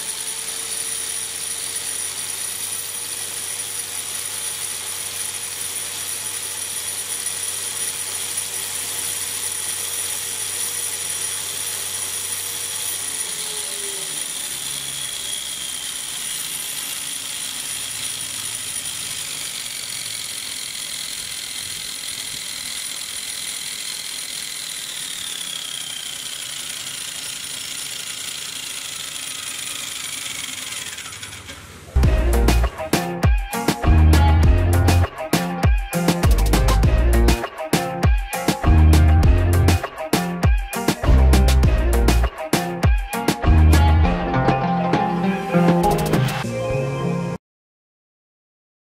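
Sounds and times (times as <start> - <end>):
gears whirring and rattling: 0.0 - 32.1
electric motor whine: 0.0 - 35.0.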